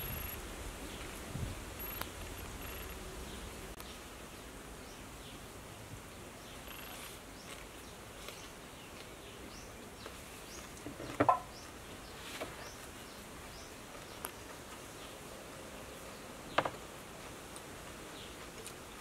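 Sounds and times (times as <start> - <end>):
faint high chirps: 1.8 - 4.0, 6.5 - 7.2.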